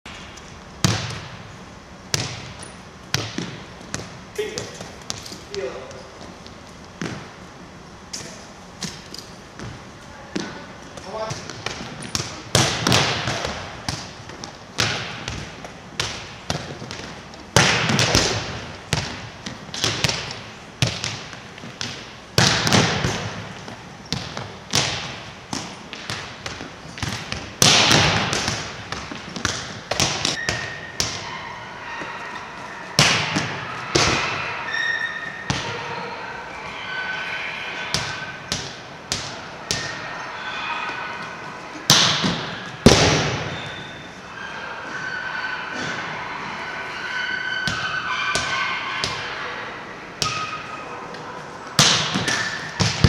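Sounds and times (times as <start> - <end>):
volleyballs bouncing on gym floor: 0.1 - 7.4, 8.8 - 31.3, 33.0 - 34.4, 35.3 - 35.9, 37.9 - 40.0, 41.9 - 43.7, 47.6 - 49.4, 50.2 - 50.7, 51.7 - 53.0.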